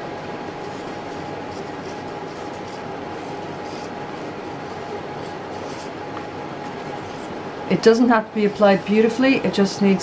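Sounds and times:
faint steady hum: 0:00.0 - 0:10.0
steady background hiss: 0:00.0 - 0:10.0
wooden stick scraping enamel: 0:00.4 - 0:07.4.

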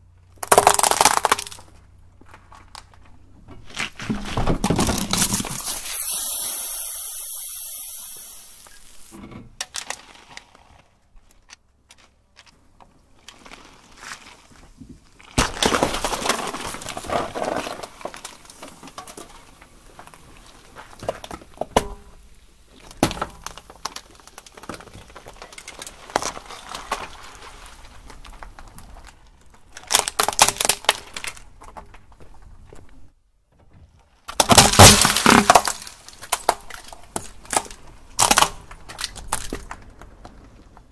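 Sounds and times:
tyre crushing watermelon: 0:00.4 - 0:01.7, 0:03.6 - 0:06.0, 0:15.3 - 0:18.6, 0:34.3 - 0:39.8
sharp crack: 0:00.4 - 0:01.8, 0:15.4 - 0:19.2, 0:34.3 - 0:39.9.

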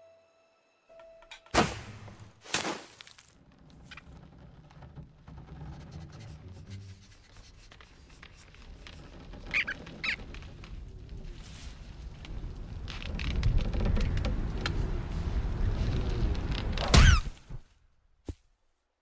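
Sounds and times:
soft rustles and clicks: 0:07.1 - 0:17.6
high squeaky chirps: 0:09.5 - 0:10.2
low rumble: 0:10.2 - 0:16.9.

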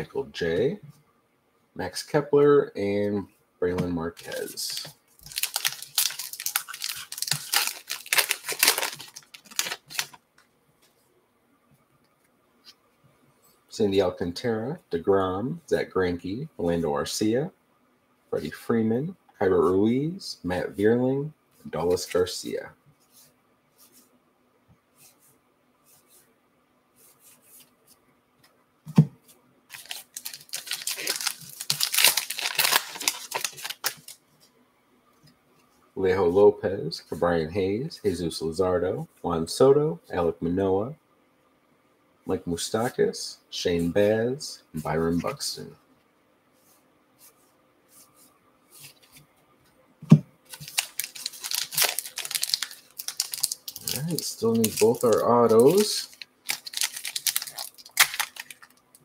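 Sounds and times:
card pack wrapper crinkling and tearing: 0:04.2 - 0:10.2, 0:29.7 - 0:34.2, 0:50.5 - 0:59.0
thump: 0:50.0 - 0:50.3.

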